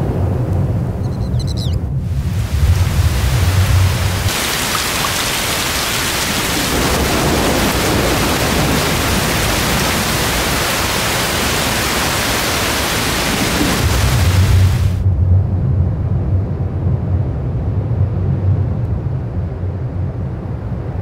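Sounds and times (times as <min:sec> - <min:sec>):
heavy rain falling onto water: 0:02.1 - 0:15.0.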